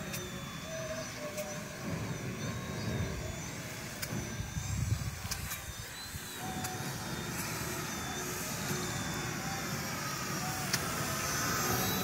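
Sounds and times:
model plane motor whine: 0.0 - 12.0
wind buffeting microphone: 1.9 - 6.3.

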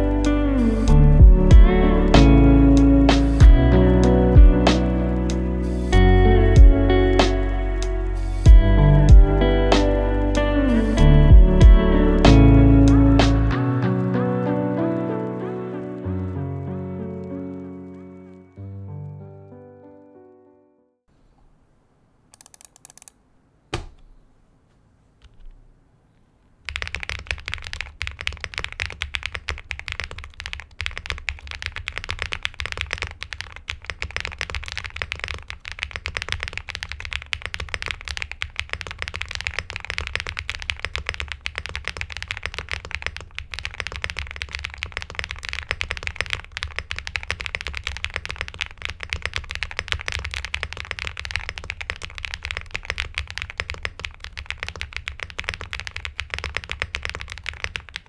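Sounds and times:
fast mechanical keyboard typing: 22.4 - 23.2, 26.7 - 58.0.

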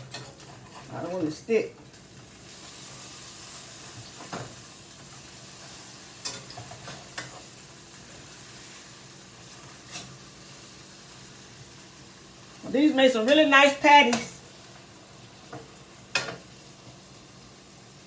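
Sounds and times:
spatula tapping and scraping pan: 0.0 - 0.9, 6.2 - 7.4, 13.2 - 14.4, 15.5 - 16.5
patties sizzling in frying pan: 0.0 - 18.0.

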